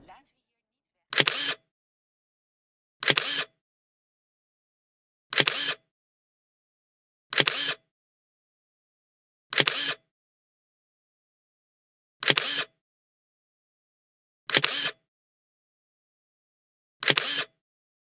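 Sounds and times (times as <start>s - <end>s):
camera shutter clicking: 1.1s - 1.6s, 3.0s - 3.5s, 5.3s - 5.8s, 7.3s - 7.8s, 9.5s - 10.0s, 12.2s - 12.7s, 14.5s - 15.0s, 17.0s - 17.5s.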